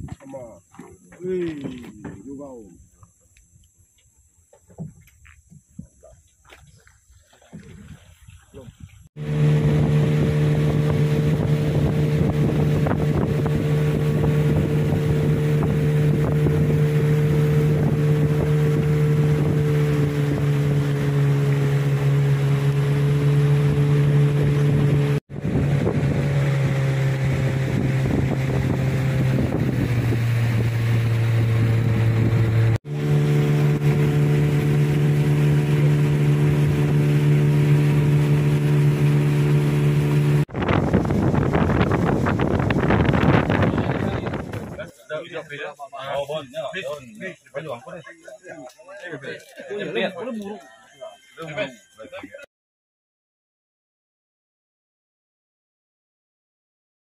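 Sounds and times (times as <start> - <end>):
wind on microphone: 4.8 - 44.9
engine running steadily: 9.2 - 45.0.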